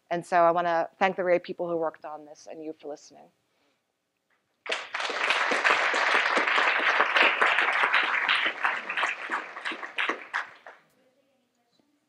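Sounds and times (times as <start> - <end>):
audience applauding: 4.6 - 10.8.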